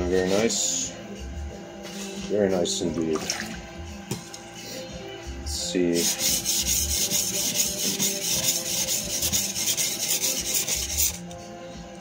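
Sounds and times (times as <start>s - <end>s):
blade scraping on whetstone: 5.9s - 11.2s.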